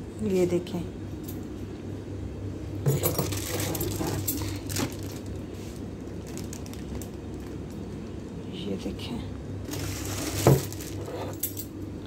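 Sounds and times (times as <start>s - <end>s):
low steady hum: 0.0s - 12.0s
plastic bag crinkling: 3.0s - 8.0s, 9.6s - 11.6s.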